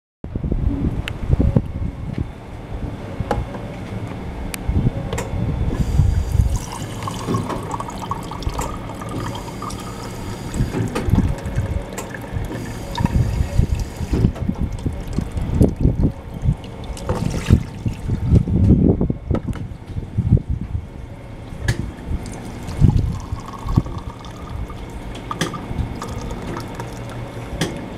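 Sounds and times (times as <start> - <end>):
water pouring into a mug: 5.8 - 18.1, 22.2 - 27.3.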